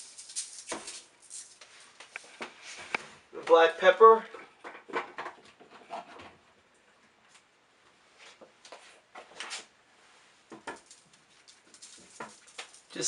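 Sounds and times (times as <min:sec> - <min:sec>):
faint scrapes and crackles: 0:05.5 - 0:06.4.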